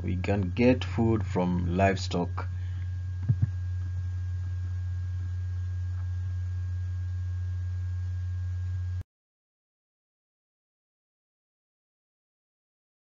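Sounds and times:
faint high whine: 0.0s - 9.1s
low electrical hum: 0.0s - 9.1s.

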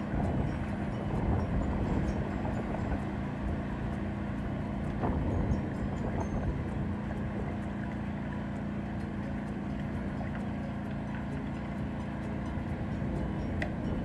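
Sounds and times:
engine running steadily: 0.0s - 14.0s.

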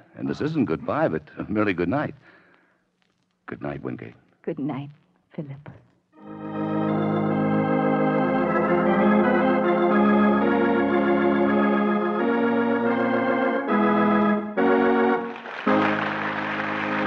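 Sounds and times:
organ playing held chords: 6.2s - 17.0s.

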